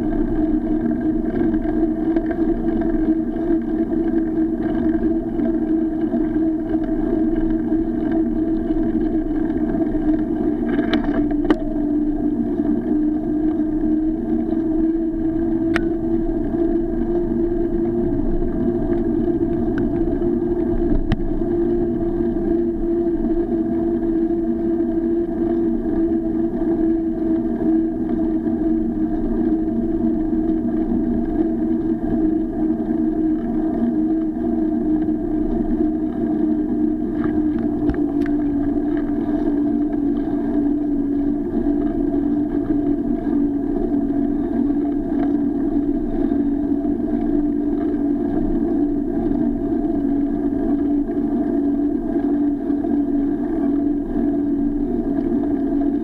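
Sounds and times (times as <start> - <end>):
bicycle tyres on asphalt: 0.0 - 11.7
bicycle riding on asphalt hum: 0.0 - 56.0
wind noise: 0.0 - 56.0.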